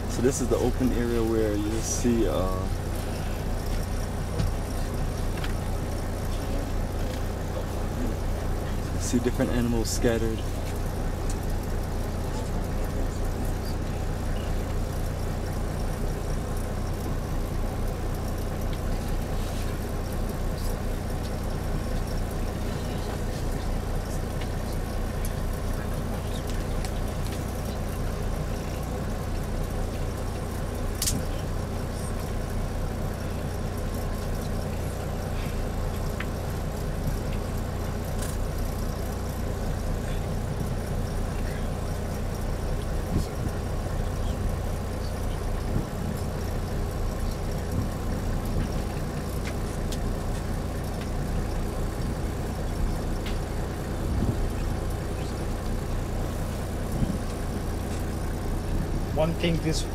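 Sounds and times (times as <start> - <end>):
vehicle engine and road rumble: 0.0 - 59.9.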